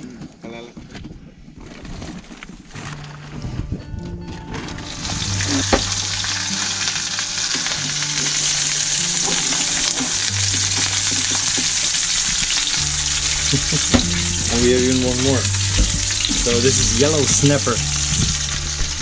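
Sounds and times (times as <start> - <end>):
fish sizzling in hot oil: 4.8 - 19.0.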